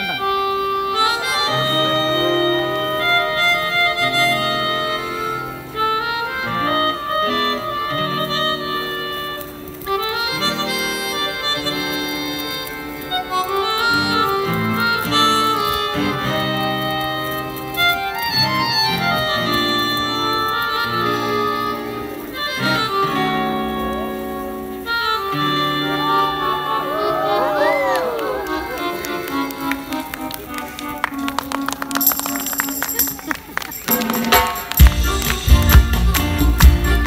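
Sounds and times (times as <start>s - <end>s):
electric guitar: 0.0s - 37.0s
keyboard chords: 0.0s - 37.0s
sustained lead melody: 0.0s - 37.0s.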